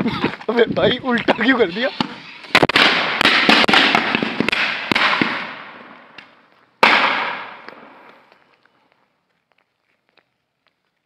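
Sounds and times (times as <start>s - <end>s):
firecrackers banging: 1.9s - 8.3s.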